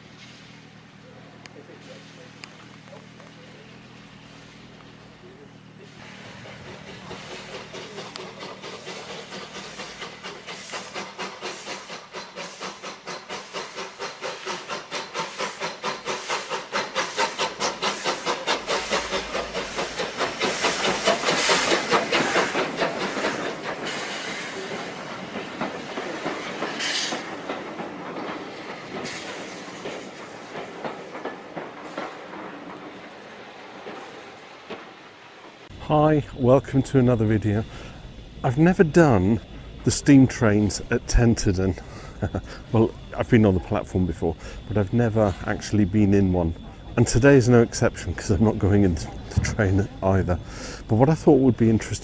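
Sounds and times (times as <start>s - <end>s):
steam hiss: 0.0s - 52.0s
steam locomotive rhythmic beat: 5.8s - 32.5s, 35.7s - 50.0s
carriages rolling: 35.6s - 52.0s.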